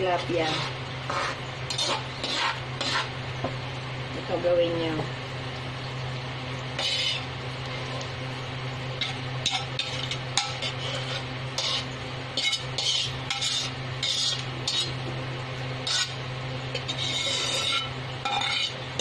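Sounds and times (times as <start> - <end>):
steady low hum: 0.0 - 19.0
metal ladle scraping wok: 0.2 - 3.2, 6.8 - 7.4, 9.0 - 15.0, 15.8 - 19.0.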